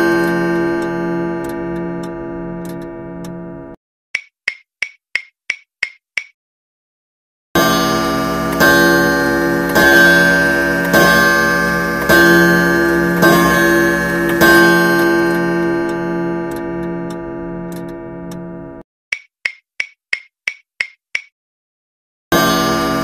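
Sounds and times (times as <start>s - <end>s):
bell-like ringing timer tone: 0.0s - 3.8s, 7.6s - 18.8s.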